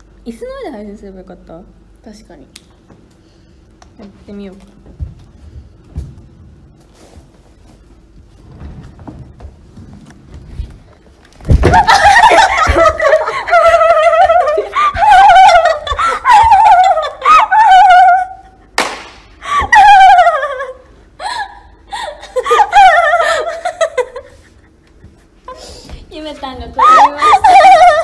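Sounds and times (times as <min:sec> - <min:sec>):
woman laughing hard: 0:11.5 - 0:18.8, 0:19.4 - 0:25.8, 0:26.8 - 0:28.0.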